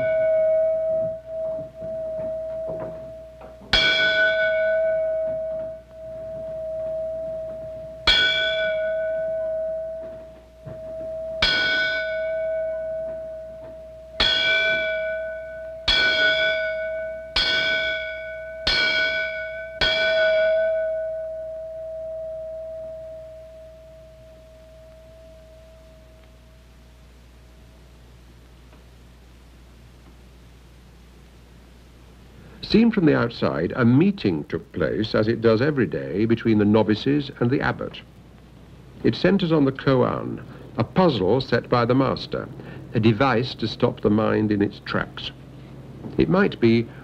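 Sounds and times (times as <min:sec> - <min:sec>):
temple bell ringing: 0:00.0 - 0:26.8, 0:46.2 - 0:47.0.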